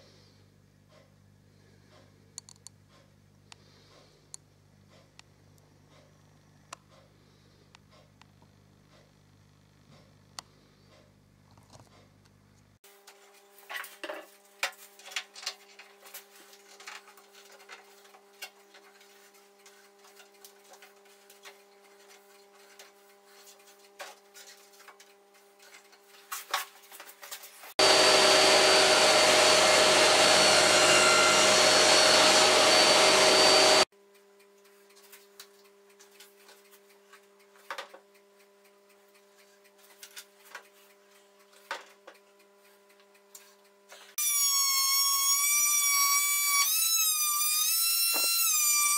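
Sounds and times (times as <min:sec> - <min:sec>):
motor with high whine: 0:27.8 - 0:33.9.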